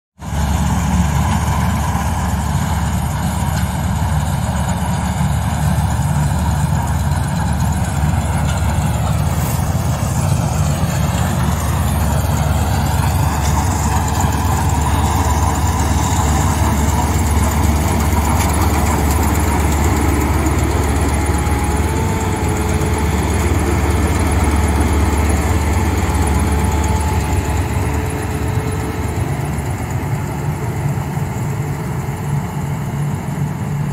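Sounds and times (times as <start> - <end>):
combine harvester engine drone: 0.2 - 33.9.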